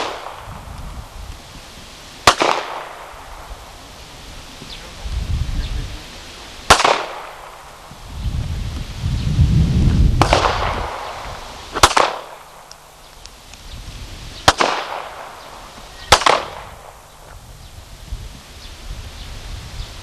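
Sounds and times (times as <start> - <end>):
pistol shots with echo: 0.0 - 0.5, 2.2 - 3.7, 6.7 - 7.8, 10.2 - 12.7, 14.4 - 17.1.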